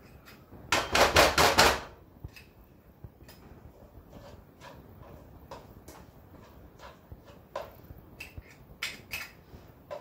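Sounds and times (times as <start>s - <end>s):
kitchen utensils clicking and tapping: 0.0s - 2.6s, 3.2s - 10.0s.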